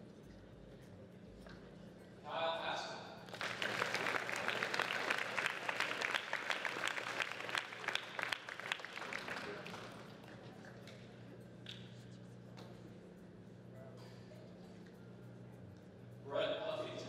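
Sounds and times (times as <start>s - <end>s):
crowd applauding: 3.3s - 10.9s.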